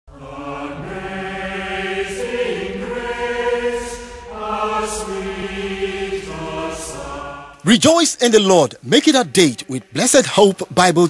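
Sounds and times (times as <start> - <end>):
choir singing long chords: 0.1 - 7.7.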